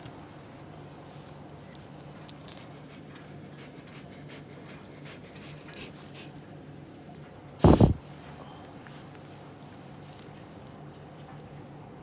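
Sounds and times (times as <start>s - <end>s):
dog breathing quietly: 2.4s - 6.4s, 7.6s - 8.0s.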